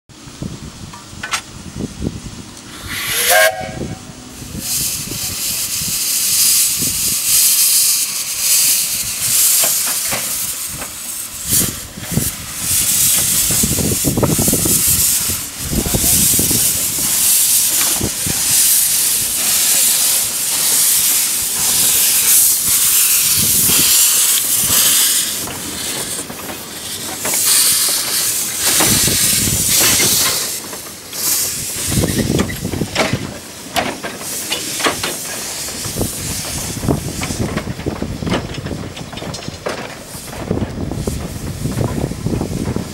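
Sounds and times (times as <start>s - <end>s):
steam hissing: 2.6s - 42.9s
drain cocks blowing: 2.7s - 4.0s
steam locomotive whistle: 2.7s - 4.2s.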